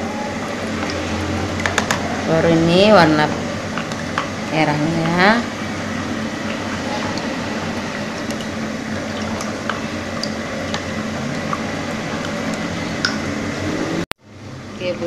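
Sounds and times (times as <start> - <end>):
background hiss and hum: 0.0 - 15.0.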